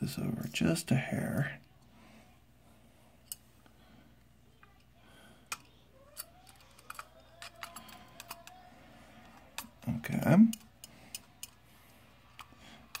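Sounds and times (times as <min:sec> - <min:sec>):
screwdriver turning small screw: 0:06.1 - 0:08.6.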